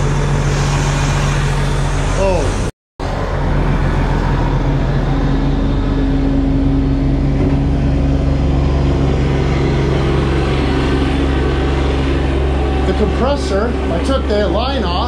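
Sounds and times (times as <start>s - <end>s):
tractor diesel engine running: 3.0s - 15.0s.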